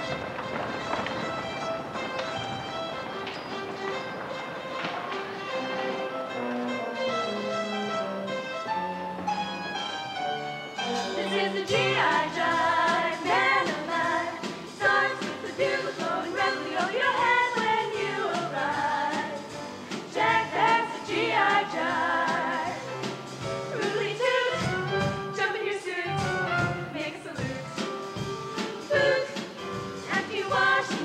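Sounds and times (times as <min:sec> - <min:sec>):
band accompaniment: 0:00.0 - 0:31.0
choir singing: 0:10.8 - 0:22.9, 0:23.7 - 0:24.8, 0:28.8 - 0:31.0
drum kit beat: 0:10.8 - 0:25.5, 0:26.1 - 0:31.0.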